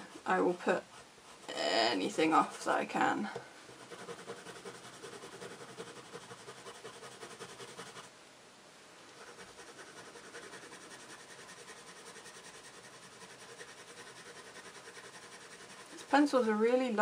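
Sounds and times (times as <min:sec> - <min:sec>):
pencil scratching on paper: 0:03.7 - 0:08.1, 0:09.1 - 0:16.6.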